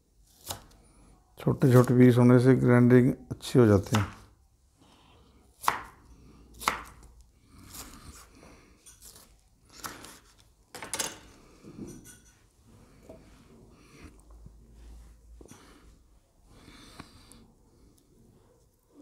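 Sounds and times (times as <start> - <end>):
knife chopping on wooden board: 3.8 - 4.2, 5.6 - 6.0, 6.6 - 7.0.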